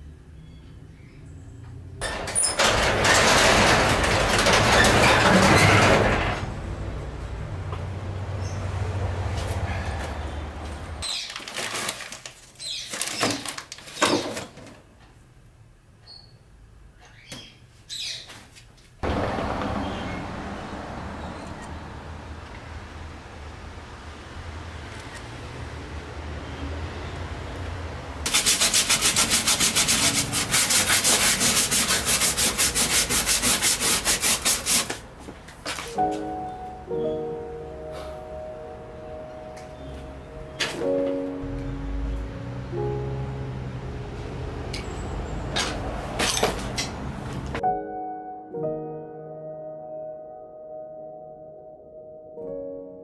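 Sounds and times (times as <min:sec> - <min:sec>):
plastic wrapping crinkling: 0:11.0 - 0:14.0
paper bag rustling: 0:11.0 - 0:14.6
hand rubbing metal floor pan: 0:28.3 - 0:35.0
music: 0:35.9 - 0:44.8, 0:47.6 - 0:53.0.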